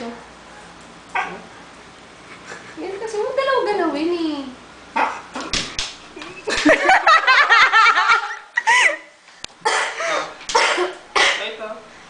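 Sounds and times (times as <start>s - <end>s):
people giggling: 6.2s - 9.2s.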